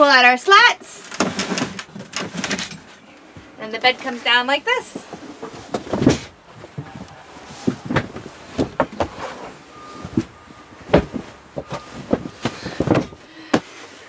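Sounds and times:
fabric rustling: 0:00.5 - 0:14.0
mattress knocks and thumps: 0:04.9 - 0:13.8.

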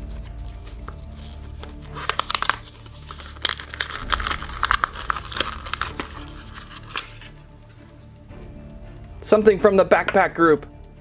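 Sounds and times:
cardboard and plastic tearing: 0:00.7 - 0:07.3.

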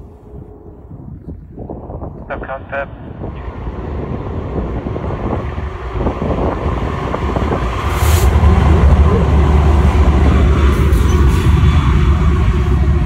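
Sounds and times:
diesel locomotives passing: 0:00.0 - 0:13.0
short rush of noise: 0:07.8 - 0:11.5.

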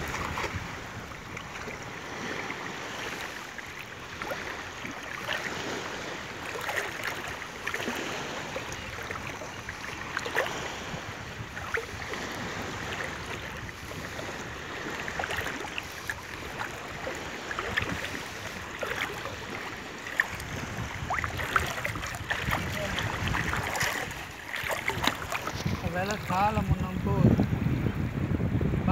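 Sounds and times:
small water splashes: 0:00.0 - 0:27.0
people wading in seawater: 0:00.0 - 0:28.9
wash of water: 0:15.0 - 0:27.1.

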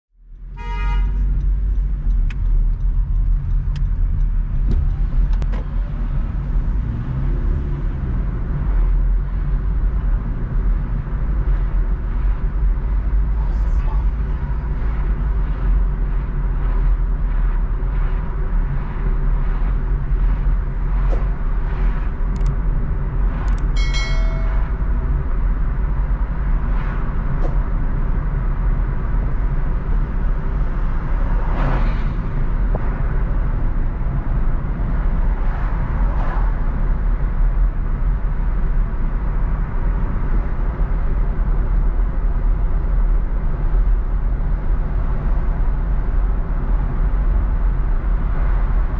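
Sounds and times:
car engine and tyre rumble: 0:00.1 - 0:48.9
high-pitched squeal: 0:23.8 - 0:25.2.

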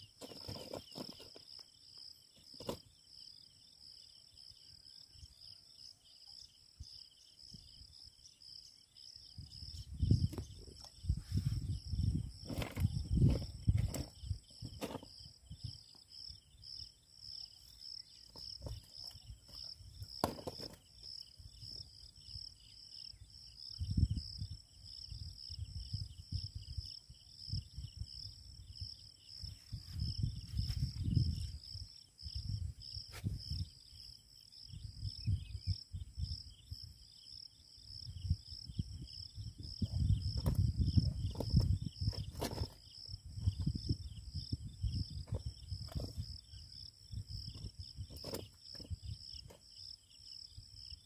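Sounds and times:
insects chirring: 0:00.0 - 0:51.0
wind buffeting microphone: 0:09.4 - 0:15.9, 0:23.8 - 0:33.8, 0:34.7 - 0:36.9, 0:38.0 - 0:49.5.

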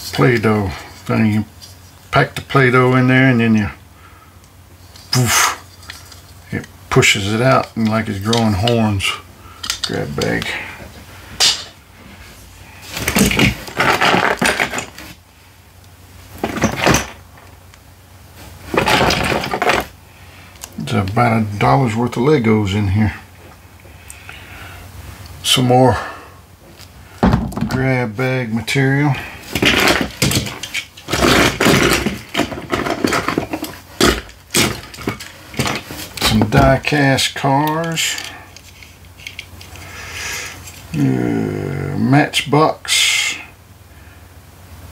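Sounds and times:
plastic toy pieces clattering: 0:18.7 - 0:19.9, 0:29.5 - 0:36.7.

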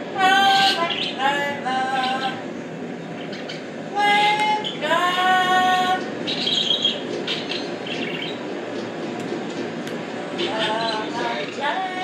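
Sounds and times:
parrot singing: 0:00.2 - 0:02.4, 0:03.1 - 0:08.4, 0:10.4 - 0:12.0.

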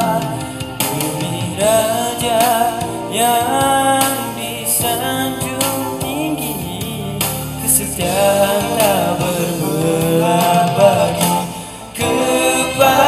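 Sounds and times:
instrumental accompaniment: 0:00.0 - 0:13.0
man singing into a microphone: 0:00.0 - 0:13.0.

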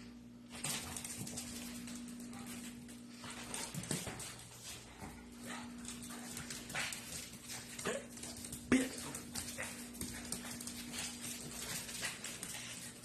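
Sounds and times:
dog claws clicking on tile floor: 0:00.5 - 0:13.0.

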